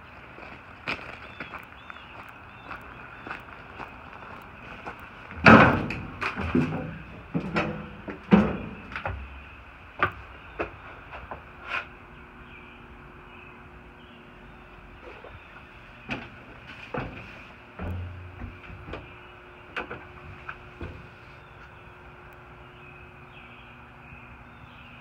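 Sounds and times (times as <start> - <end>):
footsteps on metal steps: 0.4 - 11.9, 16.0 - 21.8.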